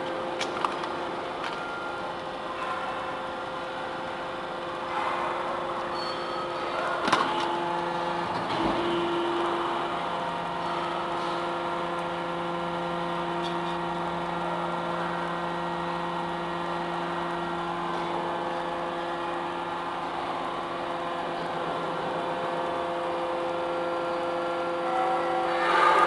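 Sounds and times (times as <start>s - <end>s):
hydraulic motor and pump humming: 0.0s - 26.0s.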